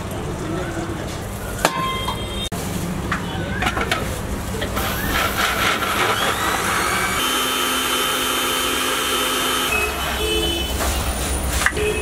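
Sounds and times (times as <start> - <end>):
blender motor whining: 4.9 - 10.2.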